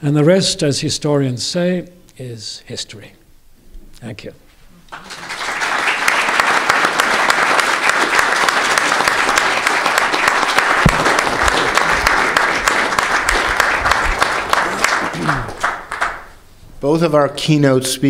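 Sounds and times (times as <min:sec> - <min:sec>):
audience applauding: 0:04.9 - 0:16.4
low thumps: 0:10.8 - 0:12.1.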